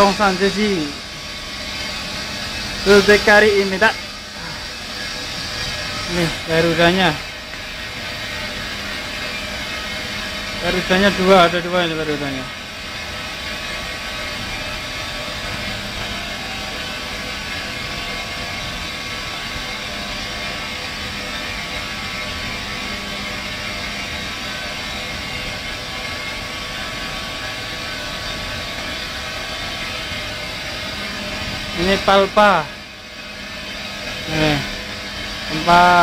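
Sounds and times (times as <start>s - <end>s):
recycling machinery drone: 0.0s - 36.0s.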